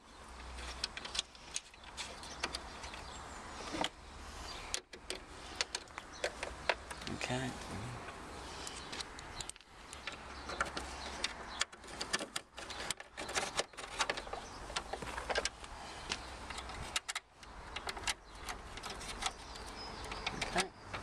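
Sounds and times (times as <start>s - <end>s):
screwdriver clicks and rattles: 8.9s - 21.0s.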